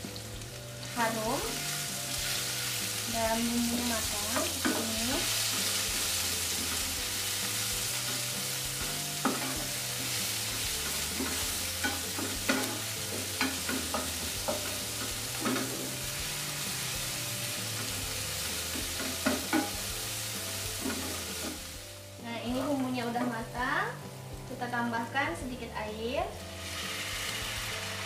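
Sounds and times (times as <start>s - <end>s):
paste sizzling in oil: 0.0s - 24.5s, 26.3s - 28.0s.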